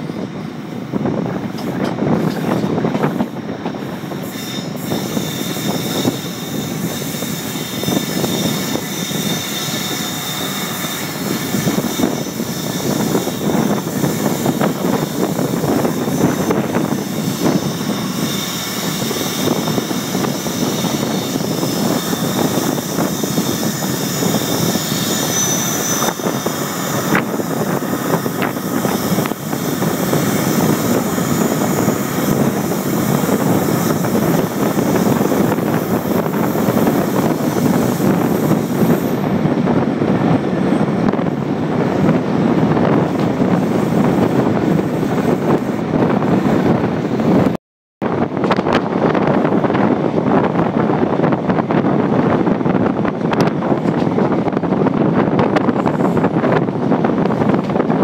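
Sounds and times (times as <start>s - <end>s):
train wheels rushing on rails: 0.0s - 58.0s
faint high wheel squeal: 3.9s - 39.2s.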